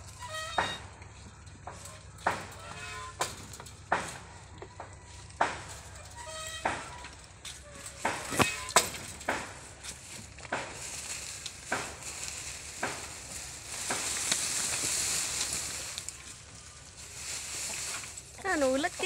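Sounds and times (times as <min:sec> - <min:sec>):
grass rustling and crackling: 0:00.0 - 0:19.0
stalks snapping: 0:07.8 - 0:16.4.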